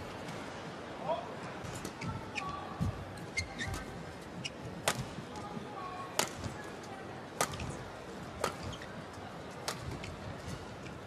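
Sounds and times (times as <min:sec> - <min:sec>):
low hall background: 0:00.0 - 0:11.0
rackets hitting shuttlecock: 0:04.8 - 0:05.1, 0:06.2 - 0:06.5, 0:08.4 - 0:08.8, 0:09.6 - 0:10.1.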